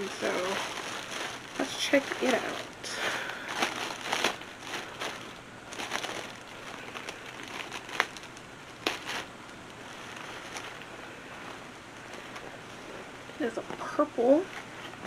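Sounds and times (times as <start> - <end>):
sharp crackles: 0.0 - 10.9
packaging crinkling and rustling: 0.0 - 15.0.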